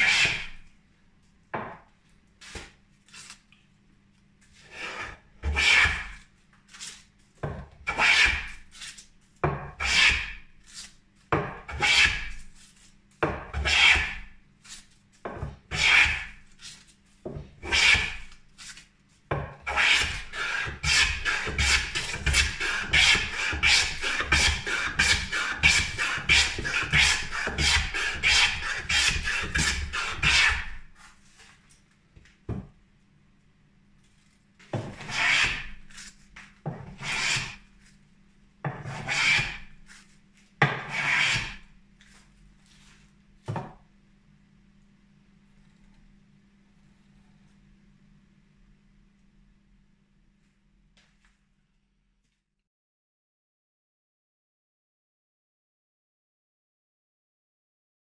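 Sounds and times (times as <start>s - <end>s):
hand plane rasping on wood: 15.7s - 16.3s, 19.7s - 30.7s, 35.0s - 35.6s, 37.0s - 37.6s, 38.8s - 39.6s, 40.8s - 41.6s.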